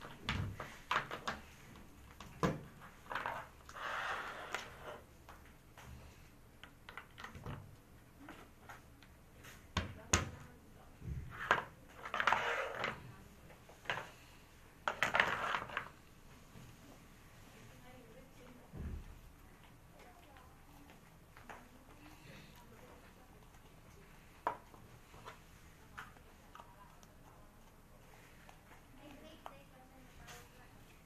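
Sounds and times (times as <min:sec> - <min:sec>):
plastic parts clicking and knocking: 0:06.6 - 0:07.8
plastic scraping and rubbing: 0:11.3 - 0:13.1.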